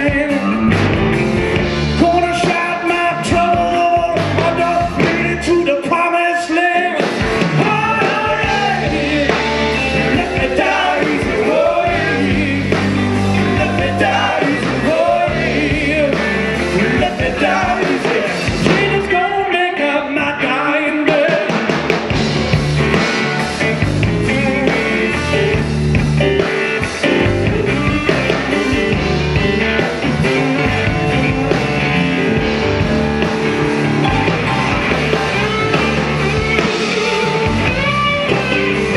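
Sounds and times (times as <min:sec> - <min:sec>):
man singing lead vocal: 0:00.0 - 0:00.8, 0:02.0 - 0:21.7
blues-rock band playing: 0:00.0 - 0:38.9.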